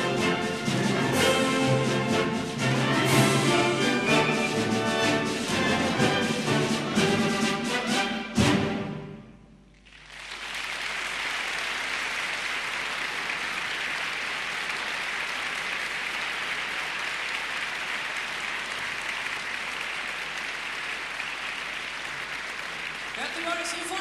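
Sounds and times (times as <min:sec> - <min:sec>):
audience applause: 0:09.8 - 0:24.0.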